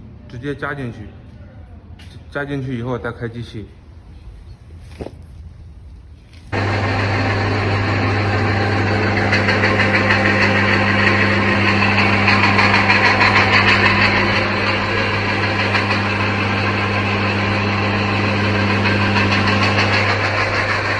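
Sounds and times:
machine motor hum: 0:06.5 - 0:20.9
fast dense rattle: 0:06.6 - 0:20.9.

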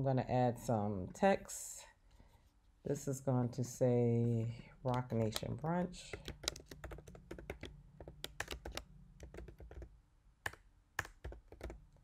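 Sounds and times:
keyboard typing: 0:04.9 - 0:12.0.

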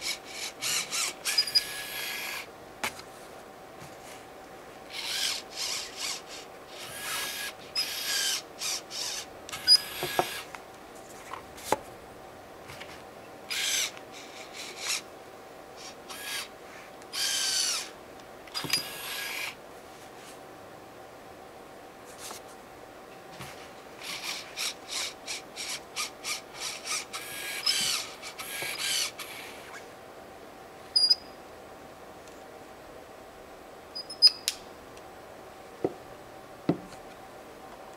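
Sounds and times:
small motor whirring: 0:00.0 - 0:02.5, 0:04.9 - 0:10.5, 0:13.5 - 0:15.0, 0:15.8 - 0:16.5, 0:17.1 - 0:19.6, 0:24.0 - 0:29.8.

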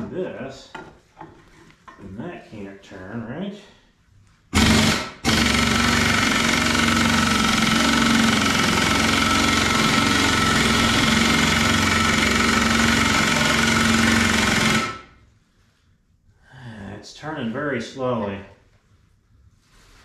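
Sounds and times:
impact wrench hammering: 0:04.5 - 0:15.1.

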